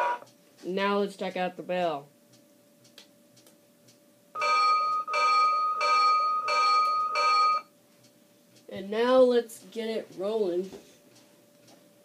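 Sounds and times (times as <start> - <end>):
toy locomotive bell dinging: 4.4 - 7.7.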